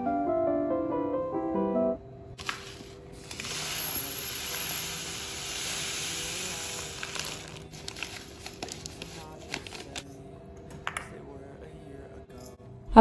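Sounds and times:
seeds pouring into glass jar: 2.4s - 10.0s.

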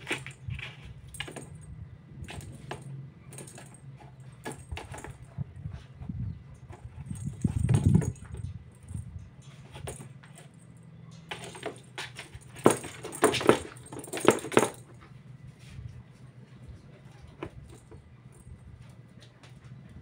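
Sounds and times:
kitten claws scratching cardboard: 0.0s - 1.6s.

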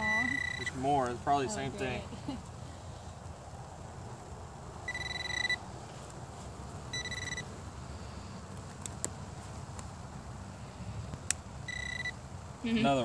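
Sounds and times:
high electronic tones: 0.0s - 0.9s, 4.9s - 5.6s, 7.0s - 7.4s, 11.7s - 12.2s.

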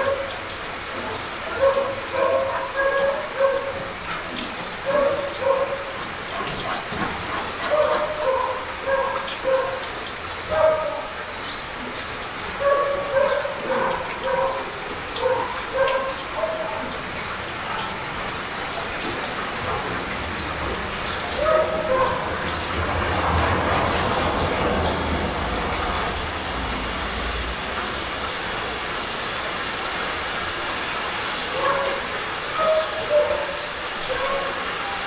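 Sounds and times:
light rain: 0.0s - 35.0s
dog barking: 1.4s - 3.8s, 4.8s - 6.9s, 7.6s - 11.1s, 12.6s - 17.0s, 21.3s - 22.7s, 31.5s - 35.0s.

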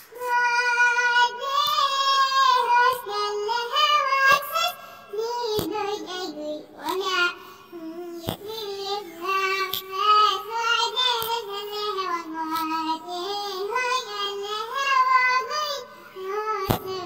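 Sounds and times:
child singing: 0.0s - 17.0s
sharp clicks: 16.6s - 17.0s.

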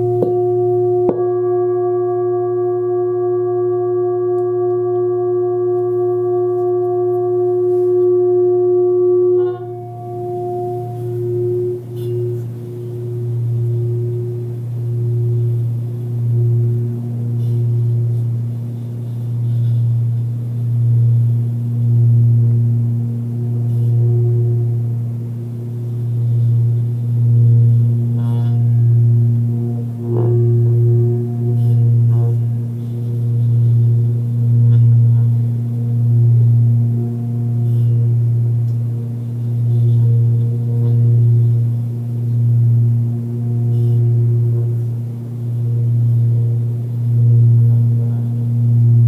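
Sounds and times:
singing bowl humming: 0.0s - 49.0s.

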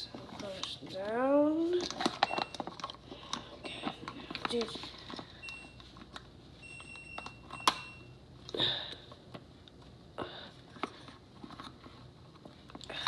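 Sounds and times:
plastic clicks and handling rustles: 0.1s - 7.9s.

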